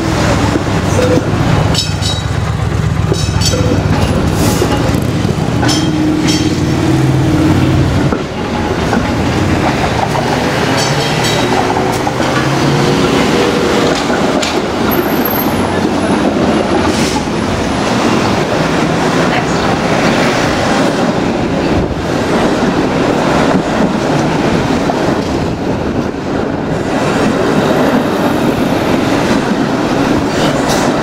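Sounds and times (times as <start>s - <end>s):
wheels rumbling over track: 0.0s - 31.0s.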